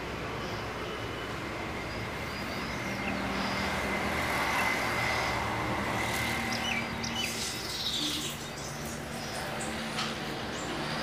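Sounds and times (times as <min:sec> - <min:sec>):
road traffic hum: 0:00.0 - 0:11.0
bird chirps: 0:06.5 - 0:09.8.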